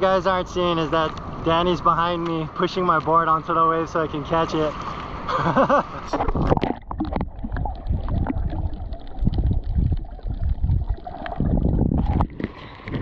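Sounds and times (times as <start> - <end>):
muffled water sloshing and gurgling: 4.3 - 13.0.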